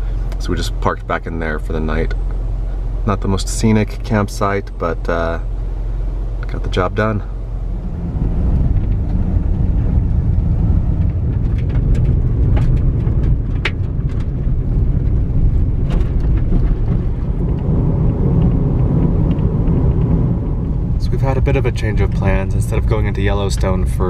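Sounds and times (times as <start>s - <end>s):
tyre and engine rumble in car cabin: 0.0s - 24.0s.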